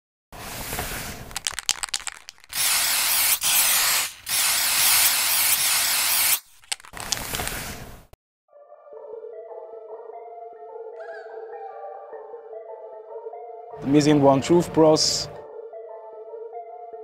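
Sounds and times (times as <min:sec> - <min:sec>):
spray can hissing: 0:00.4 - 0:07.8
spray can rattling: 0:00.9 - 0:07.8.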